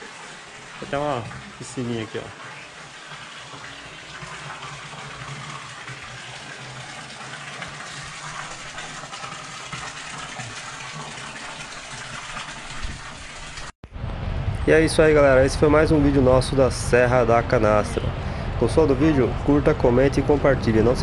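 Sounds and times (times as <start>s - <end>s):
water pouring into pool: 0.0s - 13.8s.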